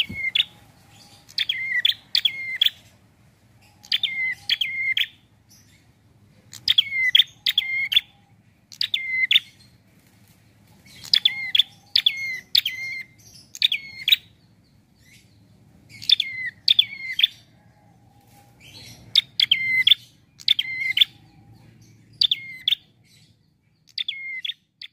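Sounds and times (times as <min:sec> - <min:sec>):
bird calling sharp notes: 0:00.0 - 0:03.0, 0:03.6 - 0:05.3, 0:06.5 - 0:09.6, 0:11.0 - 0:14.3.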